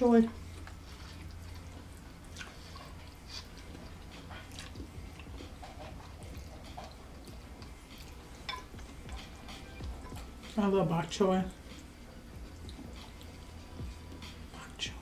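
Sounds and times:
faint low hum: 0.0s - 15.0s
chewing: 0.3s - 10.6s, 11.5s - 14.5s.

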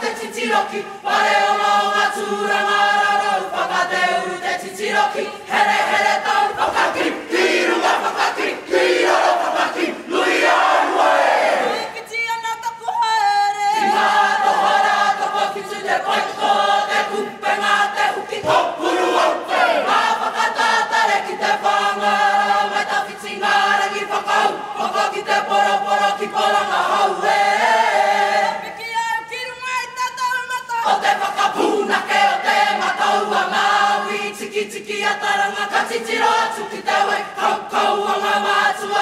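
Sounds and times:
group of voices singing: 0.0s - 12.1s, 13.5s - 29.3s, 30.6s - 39.0s.

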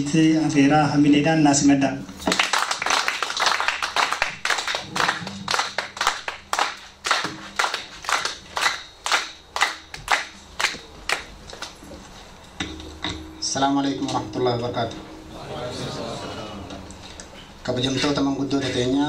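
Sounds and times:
audience applauding: 2.3s - 11.7s.

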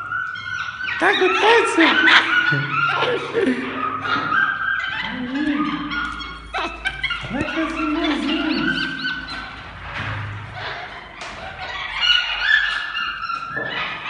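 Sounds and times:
monkey whining call: 0.0s - 9.6s
monkeys whistling and chirping: 0.0s - 14.0s.

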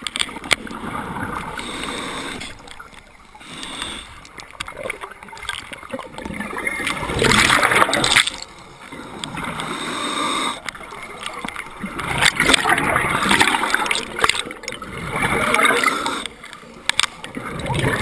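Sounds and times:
underwater gurgling rush: 0.0s - 18.0s
bubbling underwater: 4.4s - 8.4s, 10.8s - 16.2s, 17.3s - 18.0s.

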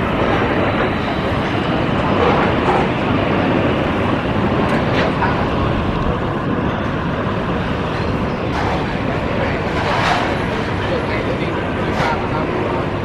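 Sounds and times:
jet engine noise: 0.0s - 13.0s
wind buffeting microphone: 0.0s - 13.0s.

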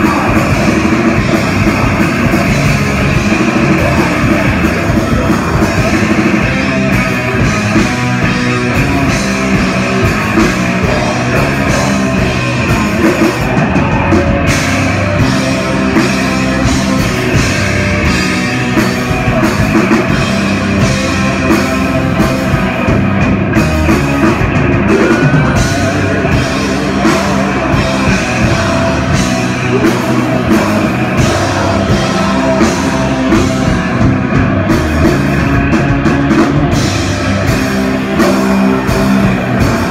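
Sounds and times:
vocalist singing: 0.0s - 18.2s, 24.6s - 35.6s
heavy metal band playing: 0.0s - 39.9s.

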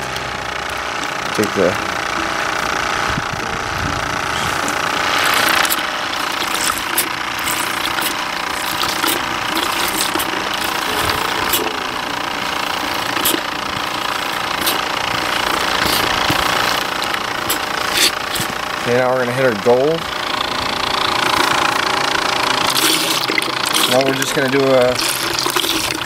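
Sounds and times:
aerator pump running: 0.0s - 26.0s
air bubbling through water: 4.1s - 18.8s
small clicks and splashes: 4.7s - 11.7s, 12.8s - 18.6s, 22.6s - 26.0s.

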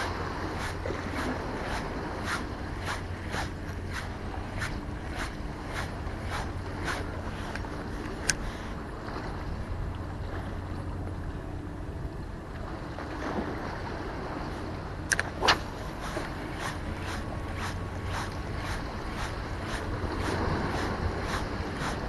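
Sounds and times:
wind rumble on microphone: 0.0s - 22.0s
sharp click: 15.1s - 15.7s.

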